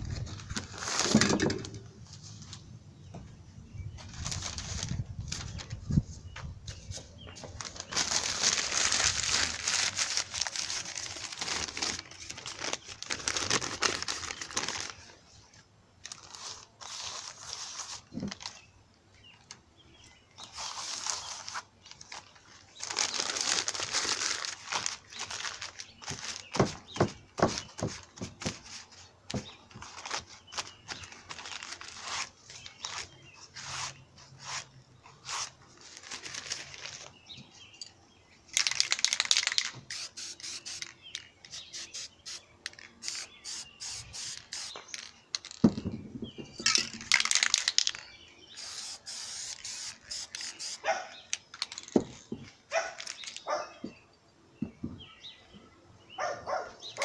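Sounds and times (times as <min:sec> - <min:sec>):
newspaper crinkling and rustling: 0:00.0 - 0:02.6, 0:04.0 - 0:15.2, 0:16.0 - 0:18.7, 0:20.4 - 0:37.5, 0:46.6 - 0:53.7.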